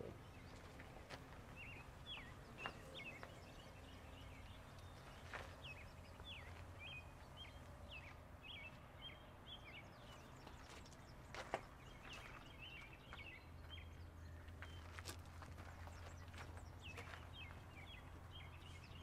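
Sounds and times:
faint bird chirping: 0:00.0 - 0:19.0.

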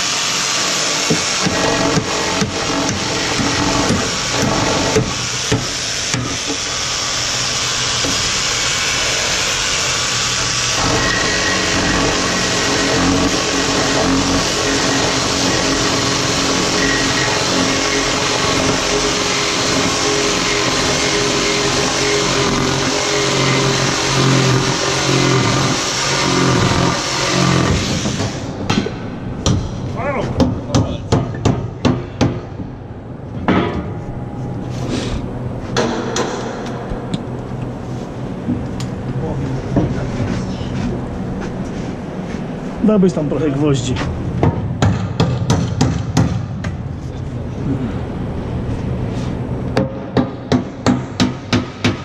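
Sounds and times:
jigsaw cutting wood: 0:00.0 - 0:28.4.

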